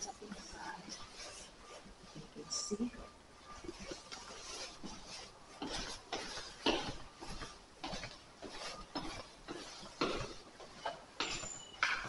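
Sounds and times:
rustling: 0.0 - 12.0
footsteps on stairs: 3.6 - 12.0.

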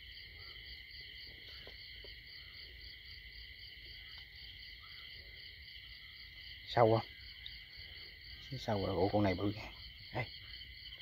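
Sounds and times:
insects trilling: 0.0 - 11.0
faint ticks and rustles: 1.0 - 2.8.

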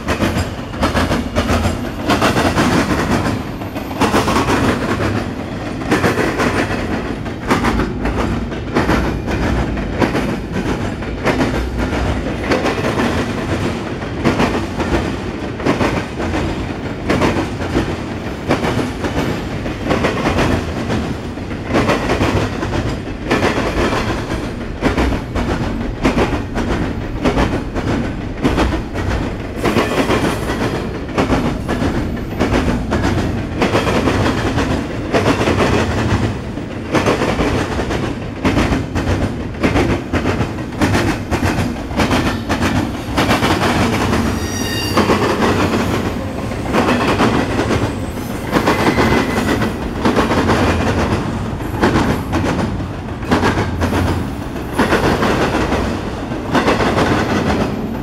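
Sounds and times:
freight train rumble: 0.0 - 58.0
train wheels clattering over rail joints: 0.0 - 58.0
high-pitched wheel squeal: 44.4 - 45.3.

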